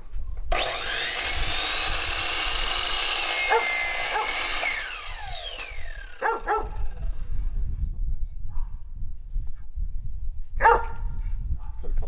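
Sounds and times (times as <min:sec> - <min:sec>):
miter saw cutting wood: 0:00.5 - 0:07.4.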